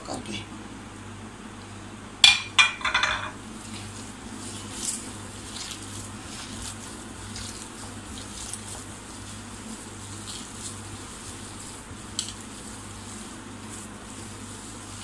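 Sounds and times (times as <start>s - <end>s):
steady low hum: 0.0s - 15.0s
hand squelching potato mash: 3.5s - 15.0s.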